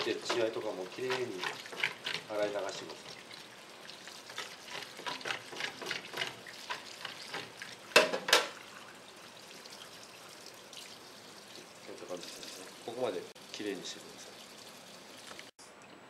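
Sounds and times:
hands scrubbing fish: 0.0s - 7.9s
tap water running into sink: 0.0s - 15.5s.

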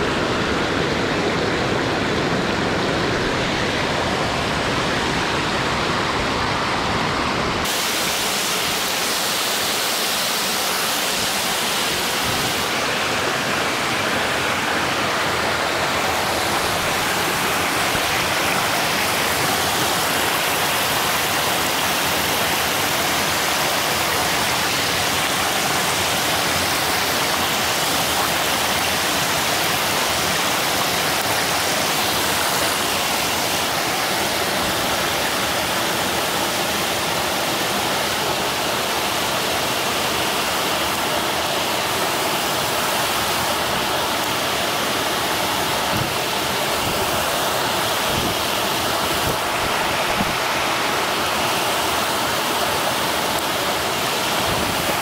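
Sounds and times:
creek water rushing: 0.0s - 55.0s.

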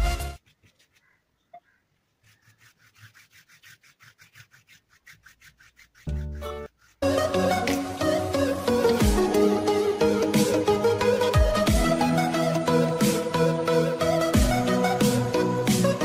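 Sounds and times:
rubbing on paper: 0.4s - 7.2s
electronic dance music: 7.2s - 13.6s.

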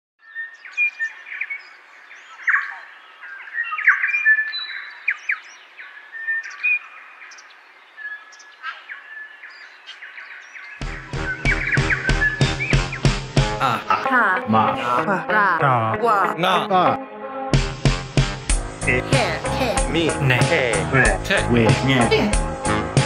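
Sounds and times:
songbirds singing: 0.2s - 13.6s
music with a beat: 10.8s - 14.8s, 17.6s - 23.0s.

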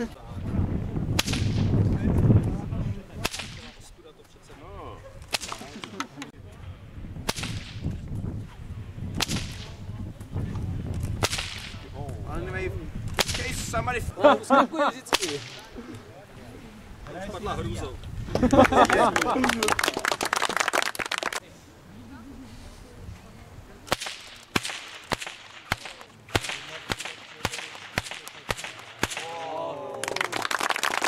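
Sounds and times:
bullwhip cracking: 1.1s - 1.8s, 3.2s - 3.8s, 5.2s - 6.0s, 7.3s - 8.0s, 9.2s - 9.8s, 11.0s - 11.9s, 13.1s - 13.7s, 15.1s - 15.7s, 23.9s - 29.6s.

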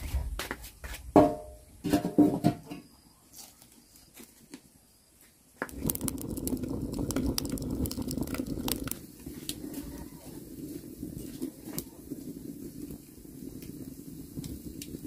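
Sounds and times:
wood fire crackling: 5.6s - 15.0s.

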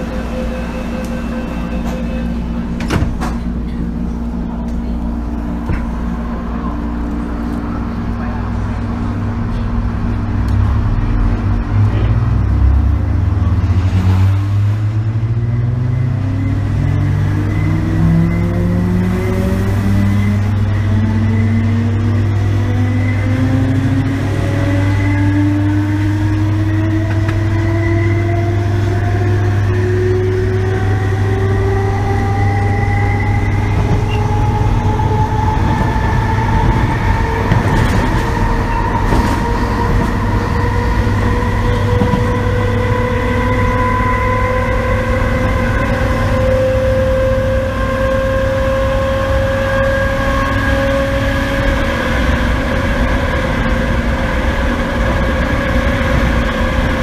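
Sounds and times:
electric train motor whine: 0.0s - 11.4s, 14.9s - 57.0s
constant low hum: 0.0s - 13.6s.

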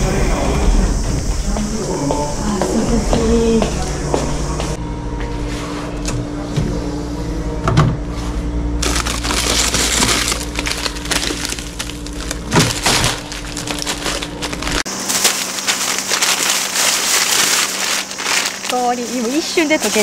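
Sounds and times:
freezer hum: 0.0s - 20.0s
ice cubes crunching and clinking: 8.8s - 20.0s
plastic bag crinkling: 8.8s - 20.0s.

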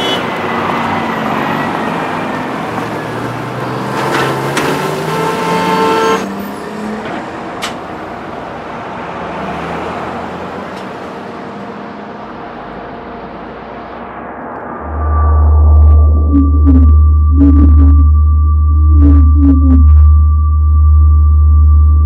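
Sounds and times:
traffic engines rumbling: 0.0s - 15.9s.

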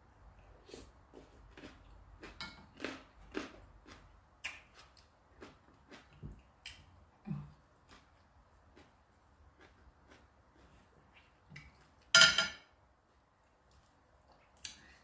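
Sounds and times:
person chewing and lip-smacking: 0.7s - 12.1s.

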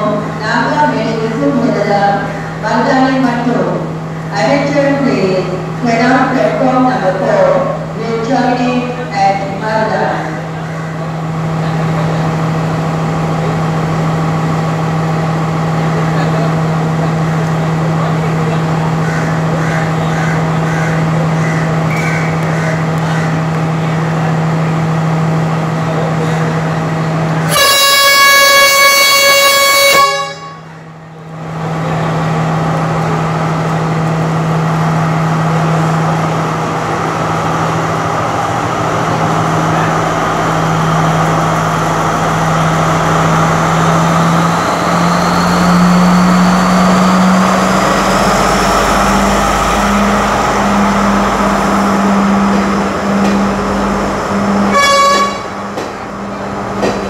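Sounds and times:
diesel train idling: 0.0s - 57.0s
train horn blast: 27.4s - 30.8s, 54.3s - 55.9s.

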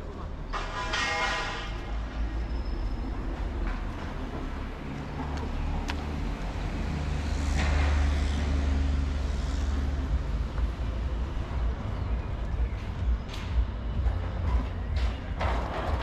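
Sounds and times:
vehicle driving past: 2.2s - 13.0s.

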